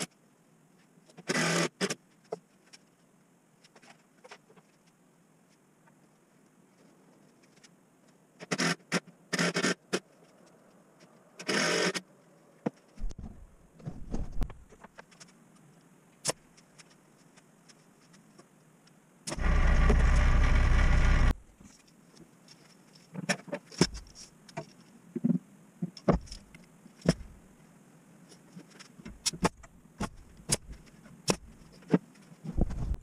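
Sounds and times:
power tool motor running: 19.3s - 21.3s.

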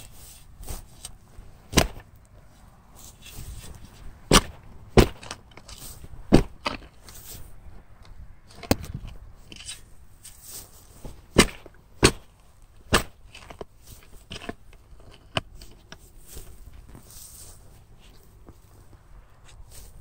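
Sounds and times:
footsteps through dry grass: 0.0s - 14.9s, 15.6s - 20.0s
shovel knocking against ground: 0.6s - 2.1s, 3.0s - 7.3s.

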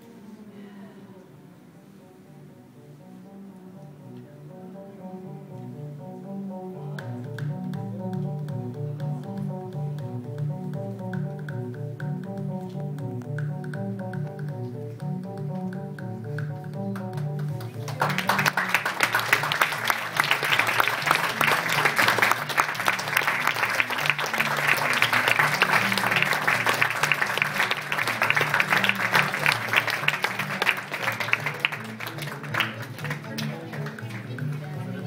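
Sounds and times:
background music with low notes: 1.5s - 35.0s
audience applauding: 16.9s - 35.0s.

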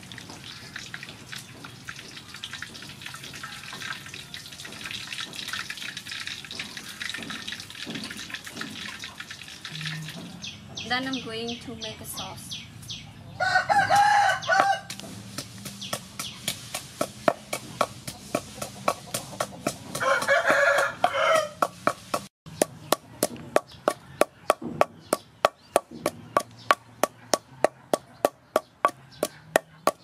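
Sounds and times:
pestle pounding in wooden mortar: 1.1s - 9.1s, 13.9s - 30.0s
rooster crowing: 13.4s - 14.9s, 20.0s - 21.6s.

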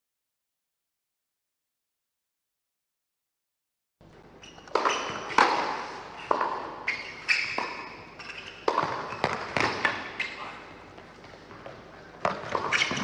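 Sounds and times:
tennis racket striking ball: 4.7s - 10.6s
tennis ball bouncing: 4.7s - 13.0s.

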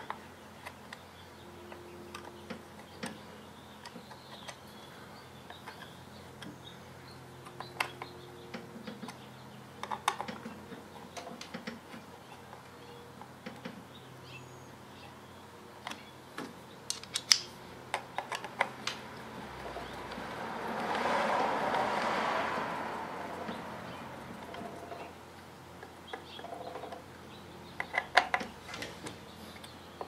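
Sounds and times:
small clicks and taps: 9.8s - 13.8s.

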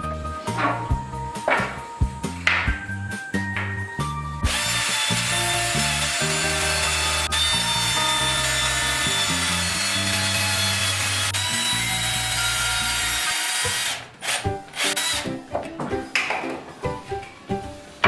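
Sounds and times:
background music with bass: 0.0s - 13.1s
cordless drill boring wood: 4.5s - 15.3s.

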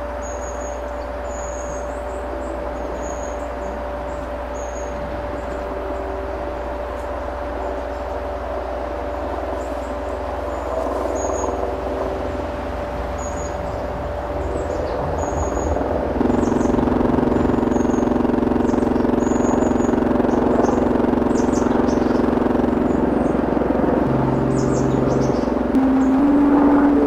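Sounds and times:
electronic drone music: 0.0s - 27.0s.

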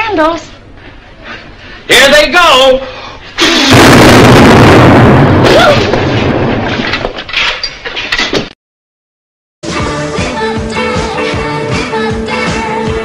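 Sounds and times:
explosion with low rumble: 3.4s - 7.0s
debris crackling and clattering: 3.4s - 8.5s.

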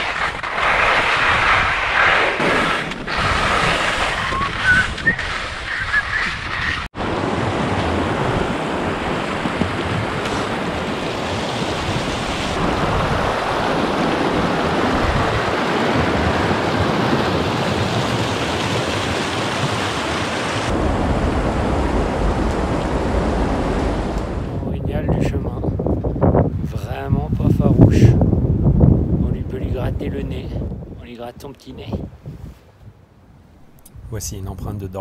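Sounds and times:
skis sliding through snow: 0.0s - 6.9s, 9.4s - 12.7s
wind on microphone: 0.0s - 35.0s.

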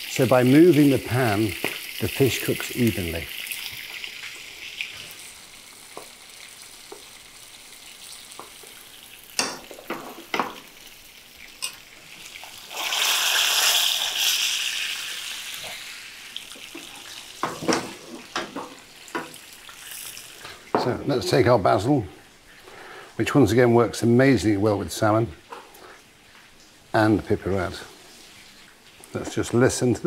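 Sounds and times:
fish sizzling in oil: 0.0s - 23.2s, 24.4s - 30.0s
spoon knocking against pan: 9.4s - 10.6s, 17.4s - 19.4s.

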